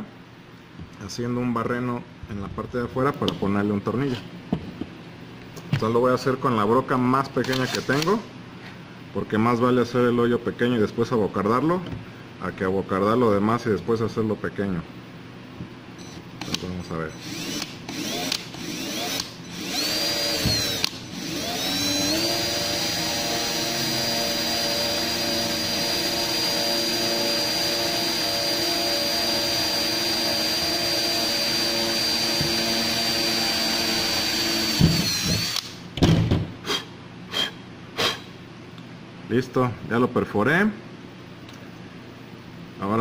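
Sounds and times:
cordless drill drilling plastic: 17.2 - 35.8.

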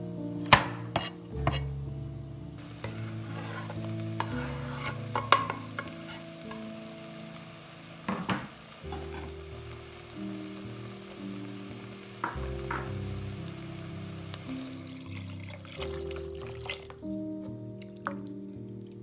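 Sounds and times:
vegetables sizzling in a pot: 2.6 - 19.0
knocks: 8.1 - 8.5.

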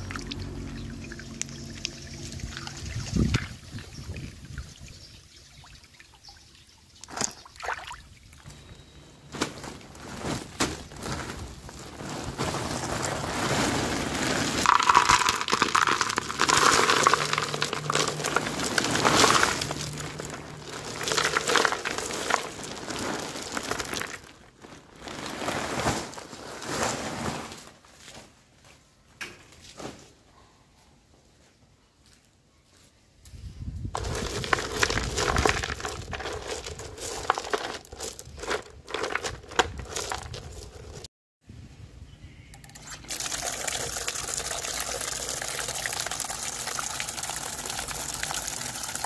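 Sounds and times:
plastic bag crinkling: 9.3 - 27.1, 34.0 - 41.1
stones and soil pouring into basin: 9.9 - 26.8, 33.9 - 41.1, 42.8 - 49.0.

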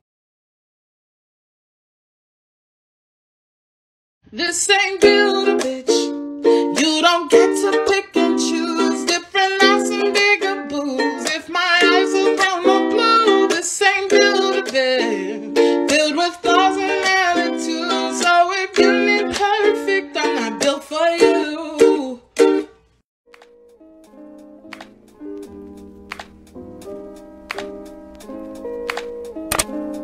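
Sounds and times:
woman singing pop song: 4.4 - 22.2
strummed ukulele: 5.0 - 22.8.

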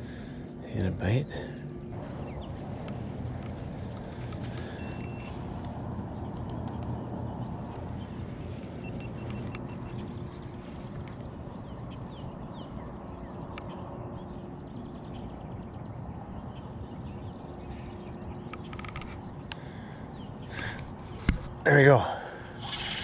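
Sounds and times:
steady low rumble: 0.0 - 18.5
faint constant hum: 0.0 - 23.0
faint bird chirps: 0.6 - 6.9
small clicks: 2.8 - 7.0, 18.5 - 19.6.

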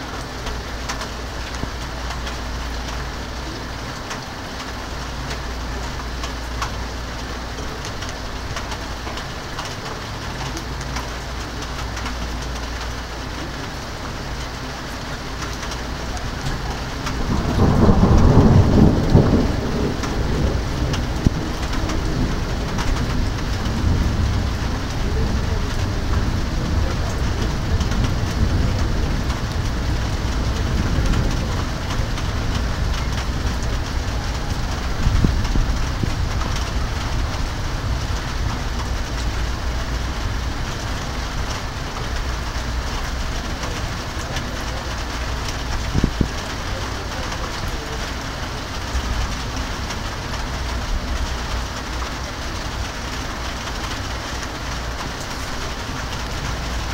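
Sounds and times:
steady rain: 0.0 - 56.9
thunder clap and rumble: 0.0 - 56.9.

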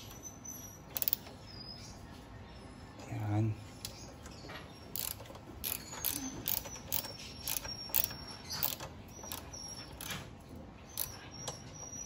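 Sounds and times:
socket ratchet clicking: 0.9 - 1.3, 4.9 - 10.1.

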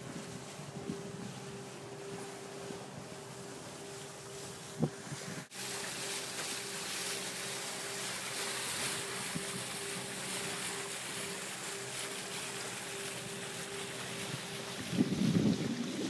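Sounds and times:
water rushing along hulls: 0.0 - 16.0
wind: 0.0 - 16.0.

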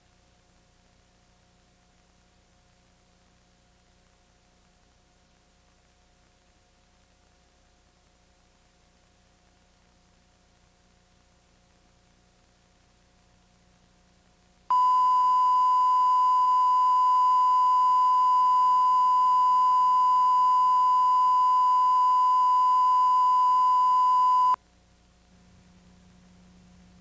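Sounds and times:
steady test tone beep: 14.7 - 24.6.

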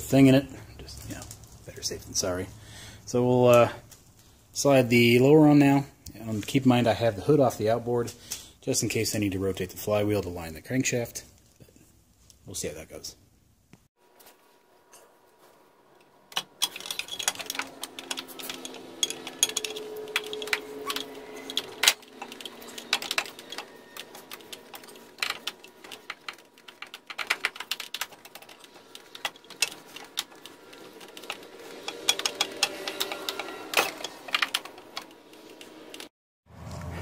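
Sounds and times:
metal clicks and knocks: 16.3 - 36.1.

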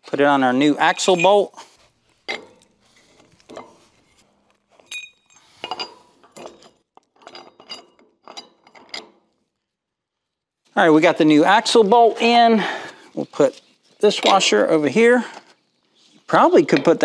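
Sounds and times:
metallic clinks and scrapes: 0.6 - 9.5, 13.4 - 17.0.

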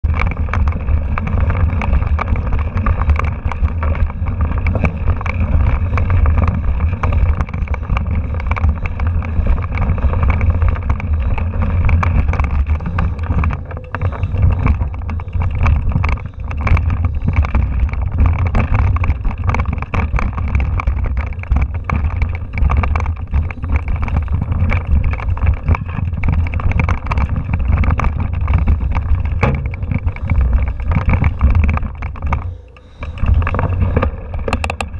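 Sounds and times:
mountain bike rattling over rocks: 0.0 - 34.9
wind buffeting microphone: 0.0 - 34.9
small knocks: 9.7 - 34.9.

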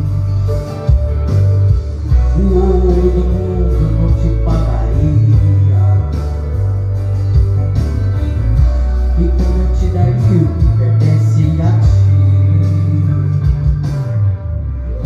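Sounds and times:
musical accompaniment with low bass: 0.0 - 15.0
young man singing into microphone: 2.1 - 6.8, 9.0 - 13.9.

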